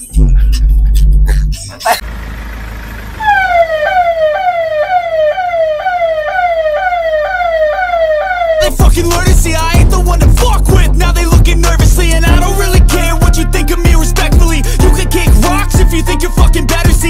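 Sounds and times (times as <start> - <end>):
loud rap music: 0.0 - 2.0, 8.5 - 17.0
electronic siren yelping: 3.1 - 8.8.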